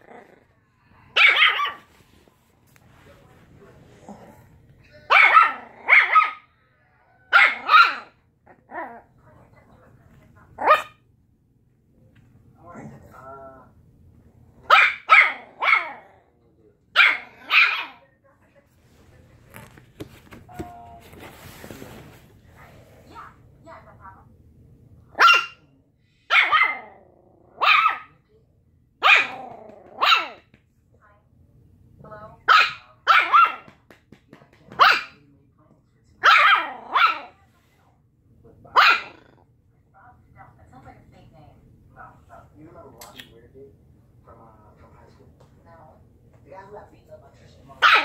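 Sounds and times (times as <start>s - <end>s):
puppy barking: 1.2s - 1.9s, 5.1s - 6.5s, 7.3s - 8.2s, 10.6s - 11.0s, 14.7s - 16.0s, 16.9s - 18.0s, 25.1s - 25.7s, 26.3s - 27.0s, 27.6s - 28.2s, 29.0s - 30.5s, 32.4s - 33.8s, 34.7s - 35.2s, 36.2s - 37.4s, 38.8s - 39.4s, 47.8s - 48.0s.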